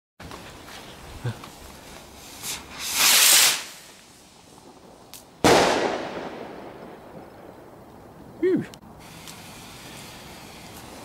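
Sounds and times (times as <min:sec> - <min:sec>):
firework rocket launching hiss: 0:02.1 - 0:07.3, 0:08.9 - 0:11.0
firework bursting bang: 0:02.4 - 0:07.8.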